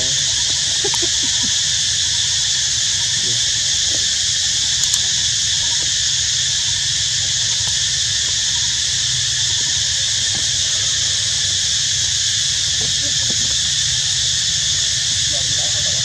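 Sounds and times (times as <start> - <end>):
faint clicks: 0.0 - 10.9
high-pitched insect chorus: 0.0 - 16.0.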